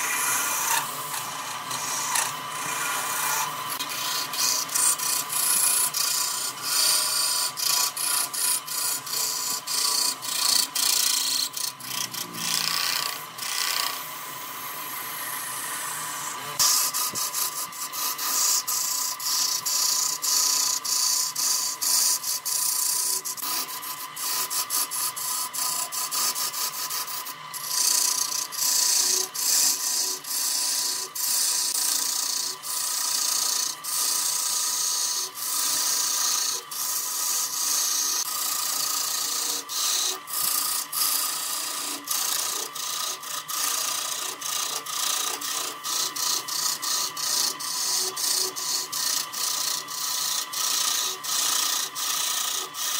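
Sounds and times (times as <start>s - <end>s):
lathe tool scraping wood: 0.0s - 52.9s
lathe whine: 0.0s - 52.9s.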